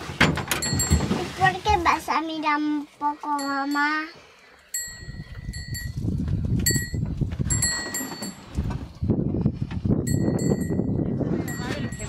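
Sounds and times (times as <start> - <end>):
high ringing tones: 3.3 - 6.0, 6.7 - 8.6, 10.0 - 12.0.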